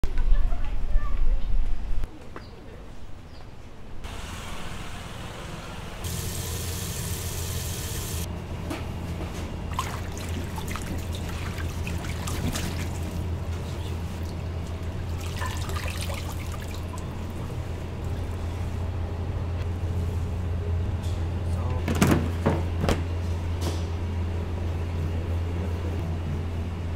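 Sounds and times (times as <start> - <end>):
steady low hum: 3.8 - 26.9
hands rinsing greens in water: 9.7 - 18.4.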